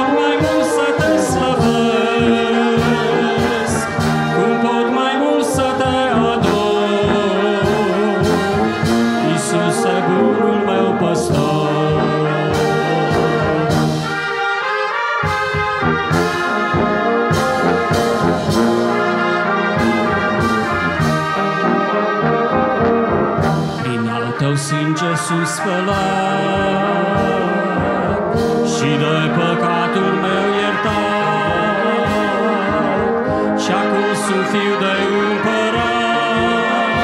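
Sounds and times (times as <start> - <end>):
brass band playing a hymn: 0.0 - 37.0
percussion strikes: 5.6 - 24.6.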